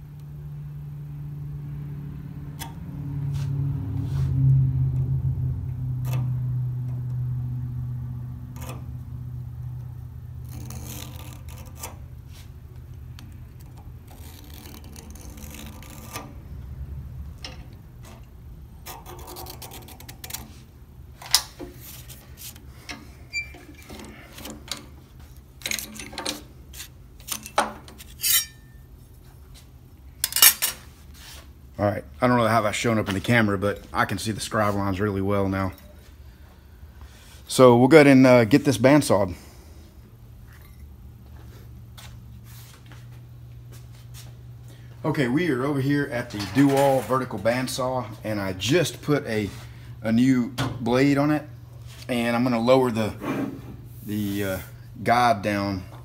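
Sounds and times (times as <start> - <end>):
scriber scratching steel plate: 10.4 - 16.8, 17.4 - 24.9, 25.6 - 28.8
metal clamps clicking and clanking: 25.6 - 28.7, 30.2 - 30.8.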